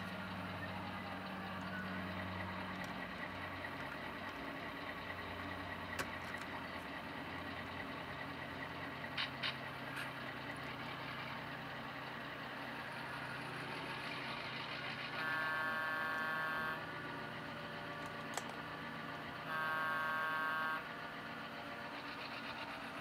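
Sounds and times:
low engine hum: 0:00.0 - 0:23.0
model locomotive horn: 0:15.1 - 0:17.0, 0:19.4 - 0:20.9.

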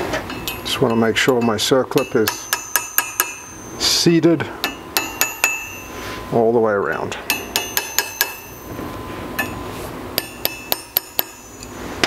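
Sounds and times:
hammer tapping metal: 0:00.3 - 0:04.0, 0:04.6 - 0:06.0, 0:06.9 - 0:08.7, 0:09.4 - 0:09.6, 0:10.2 - 0:11.7.

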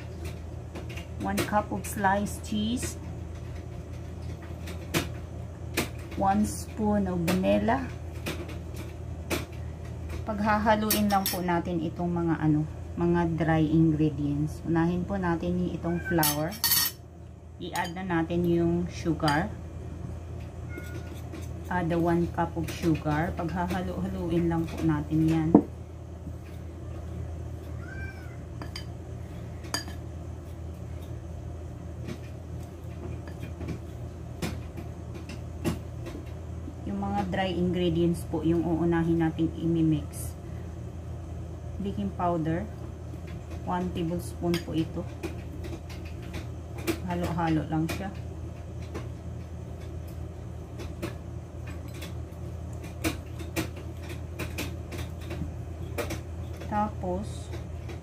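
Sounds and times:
steady low hum: 0:00.0 - 0:58.0
cat meowing: 0:15.8 - 0:16.4, 0:20.7 - 0:21.2, 0:27.8 - 0:28.5.

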